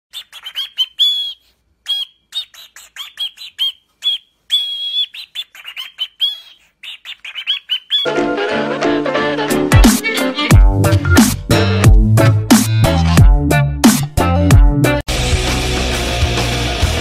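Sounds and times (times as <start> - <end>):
cockatiel chirping and whistling: 0.1 - 8.1.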